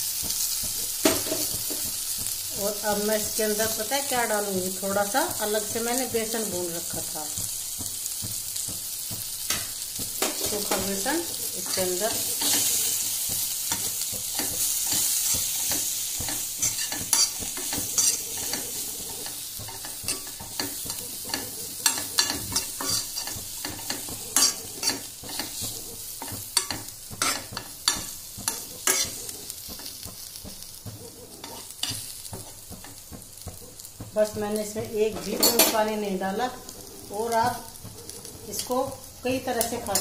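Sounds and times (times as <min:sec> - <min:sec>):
chillies sizzling in oil: 0:00.0 - 0:40.0
spoon clicking and scraping pan: 0:06.9 - 0:34.0, 0:34.6 - 0:36.0.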